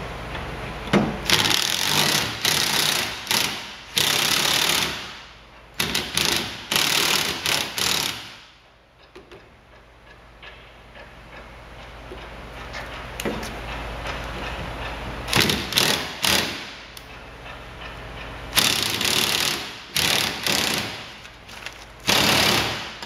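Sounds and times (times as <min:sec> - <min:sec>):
cordless drill bursts: 0:22.1 - 0:22.9.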